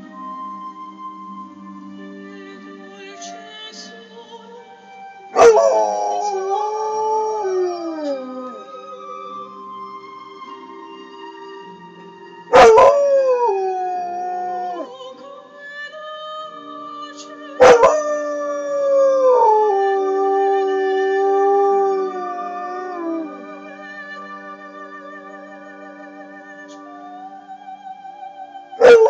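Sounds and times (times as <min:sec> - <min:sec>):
opera music on tv: 0:00.0 - 0:29.0
dog howling: 0:05.4 - 0:08.9, 0:12.5 - 0:15.0, 0:17.6 - 0:23.4, 0:28.8 - 0:29.0.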